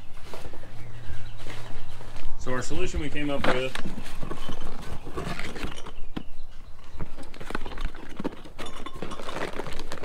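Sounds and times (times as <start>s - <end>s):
metal parts rattling in boxes: 7.4s - 10.0s.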